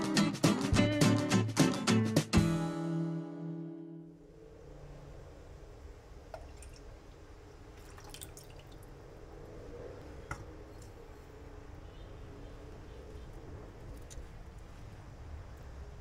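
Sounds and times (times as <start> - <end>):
liquid dripping: 6.3 - 9.0
liquid pouring into saucepan: 7.7 - 8.9.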